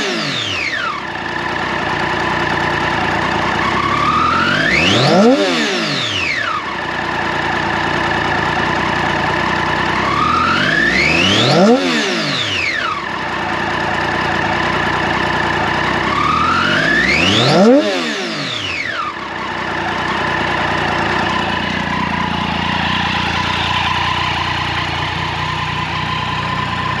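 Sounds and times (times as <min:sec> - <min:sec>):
motorcycle engine idling: 0:00.0 - 0:27.0
motorcycle engine revving: 0:00.0 - 0:27.0.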